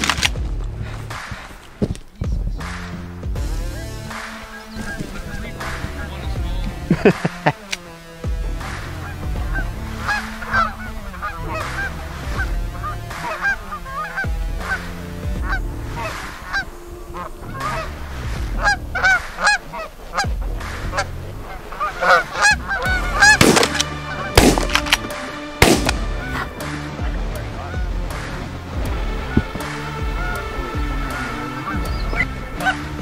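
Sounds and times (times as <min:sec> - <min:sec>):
geese honking: 0:03.5 - 0:33.0
shotgun shots: 0:23.1 - 0:26.2.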